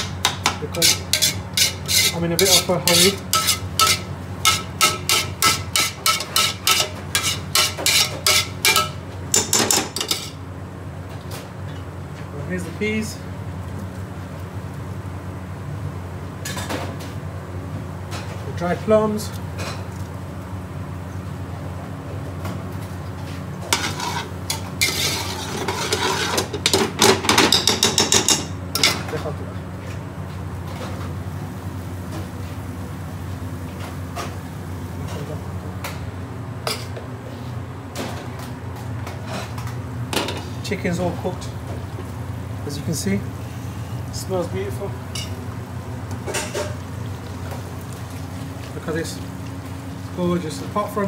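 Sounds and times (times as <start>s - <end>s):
metal ladle scraping a pot: 0.7s - 8.9s, 23.7s - 26.5s.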